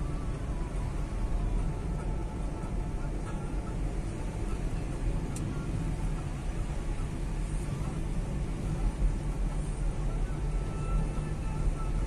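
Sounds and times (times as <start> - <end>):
car engine and tyres rumbling: 0.0 - 12.0.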